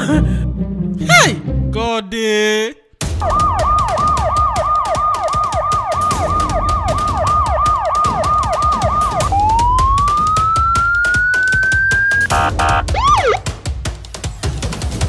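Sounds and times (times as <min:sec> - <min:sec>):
police siren yelping and wailing: 0:03.2 - 0:13.4.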